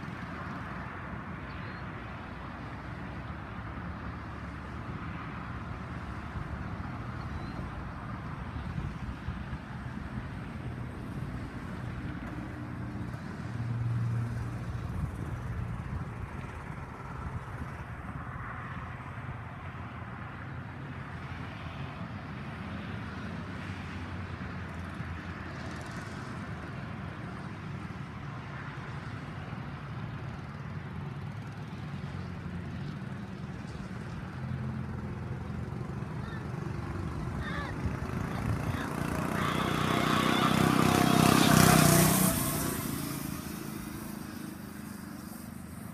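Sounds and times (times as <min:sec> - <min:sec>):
mini bike engine running: 0:33.2 - 0:45.9.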